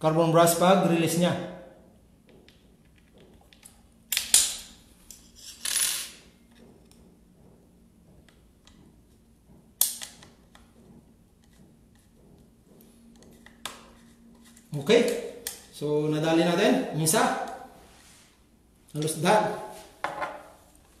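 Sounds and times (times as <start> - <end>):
hard plastic knocks: 10.3 - 13.6.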